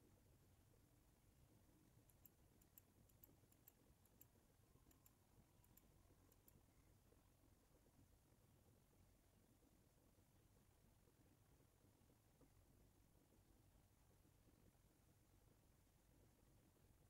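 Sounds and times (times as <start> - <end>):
computer mouse clicks: 2.0 - 6.6.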